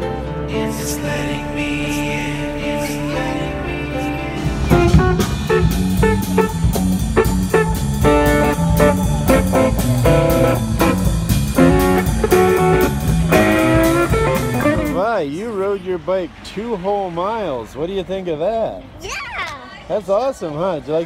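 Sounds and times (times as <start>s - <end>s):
bass line: 0.0s - 15.3s
electric guitar: 2.9s - 15.0s
drum kit beat: 4.4s - 15.2s.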